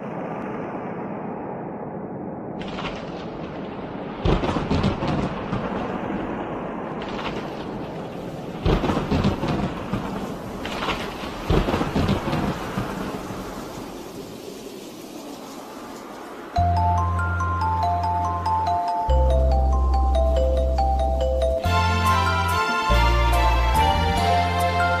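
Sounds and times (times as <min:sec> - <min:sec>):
thunder claps rumbling: 0:00.0 - 0:16.5
steady rain: 0:02.6 - 0:25.0.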